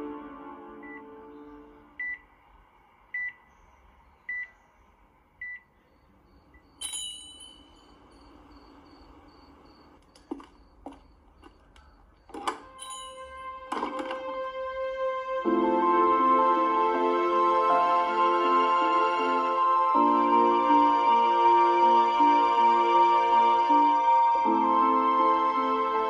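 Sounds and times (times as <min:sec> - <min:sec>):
soft music: 0:00.0 - 0:02.4, 0:12.2 - 0:26.0
heart monitor beeping: 0:00.8 - 0:01.1, 0:02.0 - 0:02.2, 0:03.1 - 0:03.4, 0:04.3 - 0:04.6, 0:05.4 - 0:07.0, 0:07.6 - 0:12.9
bright ringing sound: 0:06.6 - 0:13.6.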